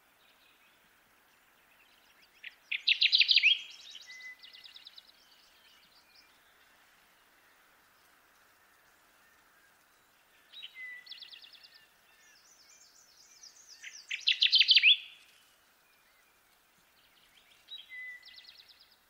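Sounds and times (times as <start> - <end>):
faint steady hiss: 0.0 - 19.0
warbler singing: 0.1 - 19.0
bird chirping phrases: 1.5 - 6.7, 10.0 - 19.0.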